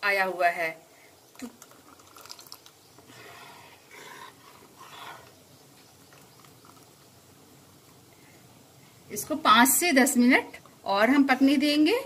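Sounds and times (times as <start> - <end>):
oil bubbling faintly: 1.1 - 9.1.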